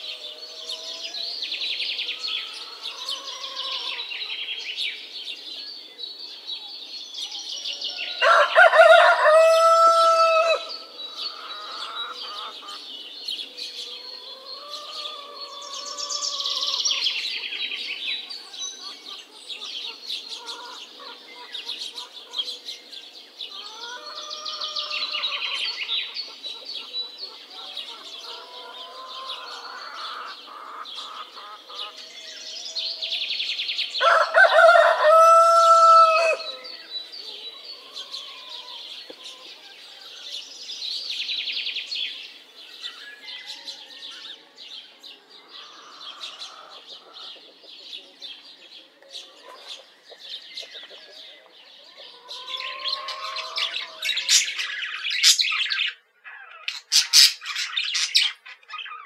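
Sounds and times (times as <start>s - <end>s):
rooster crowing: 8.0s - 12.2s, 34.0s - 36.8s, 52.2s - 54.4s
budgerigars chattering: 23.6s - 32.1s, 52.1s - 59.0s.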